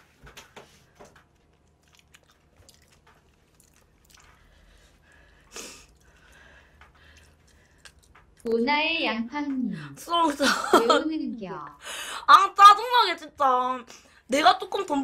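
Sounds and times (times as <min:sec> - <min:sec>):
person chewing: 0:01.2 - 0:08.5.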